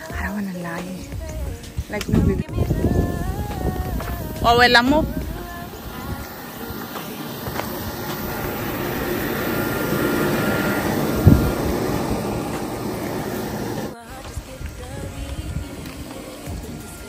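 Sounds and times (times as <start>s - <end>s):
passing engine: 5.0s - 14.0s.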